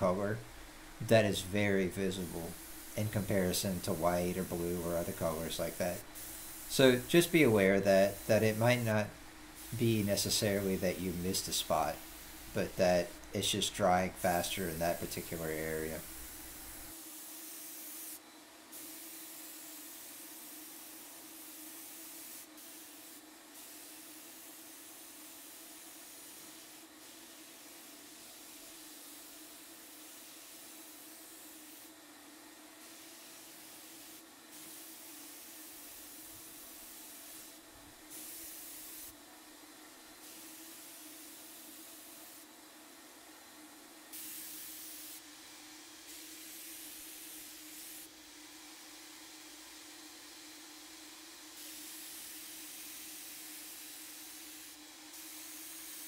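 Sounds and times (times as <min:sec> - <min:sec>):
steady low hum: 0:00.0 - 0:16.9
paint spray gun hissing: 0:01.0 - 0:31.9, 0:32.8 - 0:39.2, 0:40.2 - 0:42.5, 0:44.1 - 0:49.9, 0:51.0 - 0:56.0.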